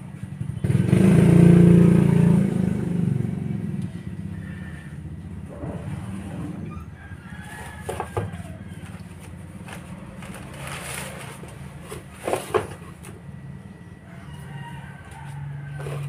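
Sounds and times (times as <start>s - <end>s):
low engine-like hum: 0.0s - 16.0s
plastic wrapping crinkling: 8.8s - 12.5s.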